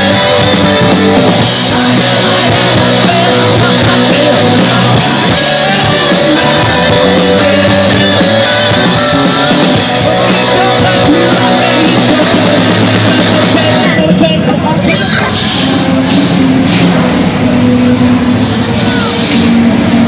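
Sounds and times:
drum kit beat: 0.0 - 14.4
bass guitar: 0.0 - 20.0
distorted electric guitars: 0.0 - 20.0.

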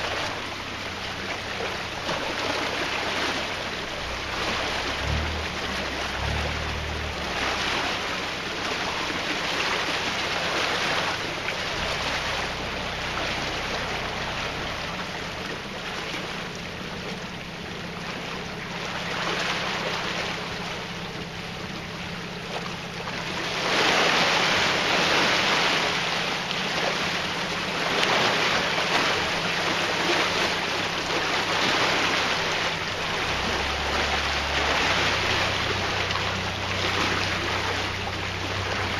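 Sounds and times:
boat engine running: 0.0 - 38.9
water rushing and churning: 0.0 - 38.9.

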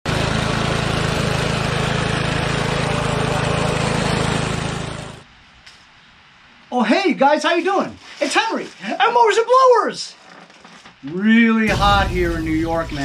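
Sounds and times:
lawn mower engine running: 0.1 - 5.3.

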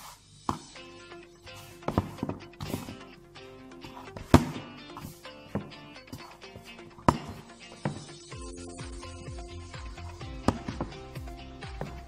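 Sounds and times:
background music with held notes: 0.2 - 12.0
dough kneading thumps: 1.6 - 3.1, 3.8 - 8.2, 10.3 - 12.0.

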